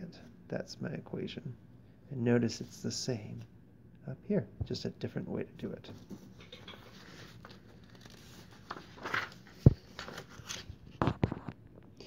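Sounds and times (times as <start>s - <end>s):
paper rustling: 6.0s - 11.5s.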